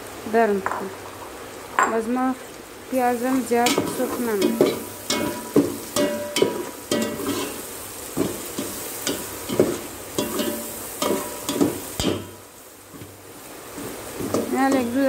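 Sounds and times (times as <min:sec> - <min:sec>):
onions sizzling in hot oil: 0:02.5 - 0:15.0
ladle scraping metal pot: 0:03.6 - 0:07.6.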